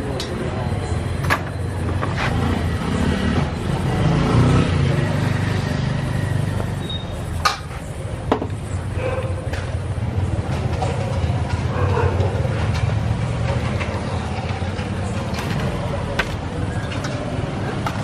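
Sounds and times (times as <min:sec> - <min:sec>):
road traffic rumble: 0:00.0 - 0:18.0
vehicle passing: 0:02.2 - 0:06.8.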